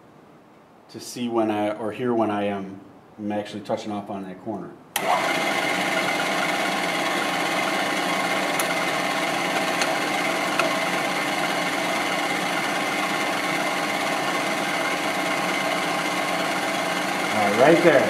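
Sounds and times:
milling machine spindle running: 0:05.0 - 0:18.0.

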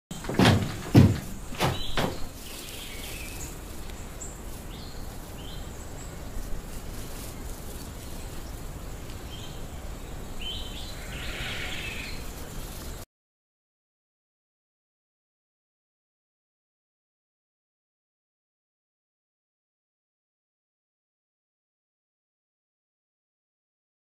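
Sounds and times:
sharp thumps: 0:00.1 - 0:02.5
hissing ambience: 0:00.2 - 0:13.0
faint bird chirps: 0:01.7 - 0:12.3.

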